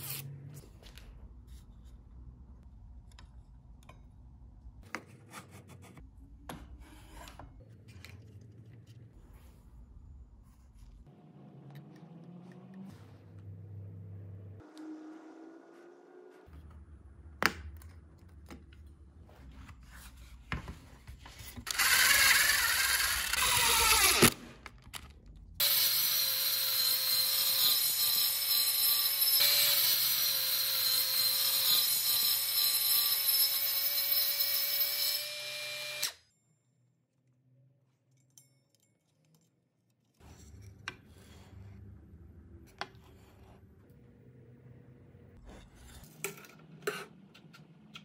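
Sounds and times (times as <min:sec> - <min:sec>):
circular saw motor running: 0:21.7 - 0:24.3.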